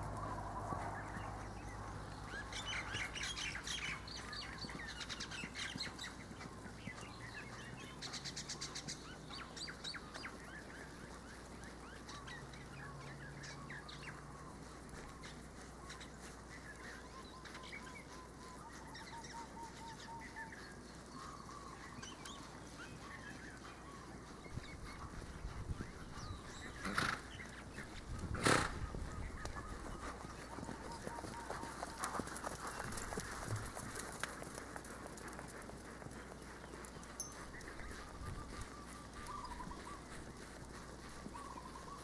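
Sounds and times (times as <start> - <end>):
birds chirping: 0.0 - 42.0
bird trill: 37.0 - 40.4, 41.2 - 42.0.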